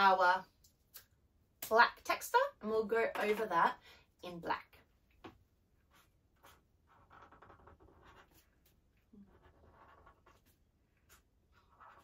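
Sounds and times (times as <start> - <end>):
felt-tip marker scratching on paper: 5.9 - 12.0.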